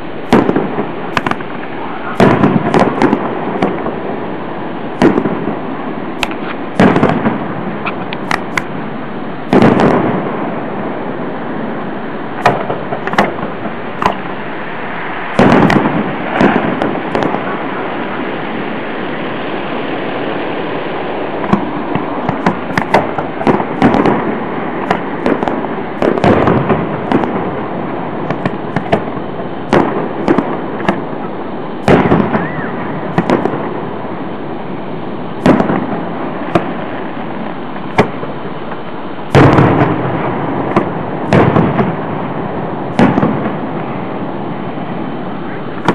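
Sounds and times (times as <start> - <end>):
fireworks booming: 0.0 - 45.9
fireworks pops and cracks: 0.3 - 4.0, 4.9 - 5.6, 6.2 - 8.8, 9.5 - 10.4, 12.4 - 14.4, 15.2 - 18.3, 21.4 - 31.1, 31.8 - 33.8, 35.4 - 44.1.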